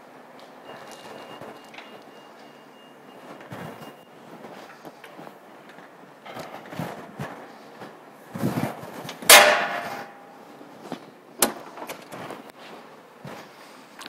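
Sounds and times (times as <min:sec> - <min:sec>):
loud metal clank: 0:09.2 - 0:10.4.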